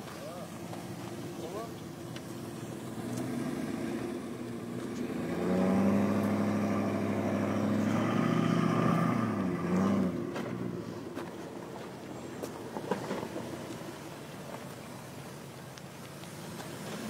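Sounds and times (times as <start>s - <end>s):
engine revving hard: 2.7s - 10.3s.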